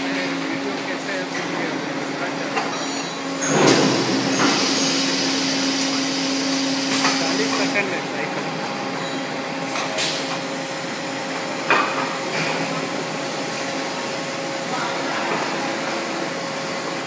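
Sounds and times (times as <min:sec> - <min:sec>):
machinery humming: 0:00.0 - 0:17.0
pneumatic hiss: 0:03.4 - 0:07.8.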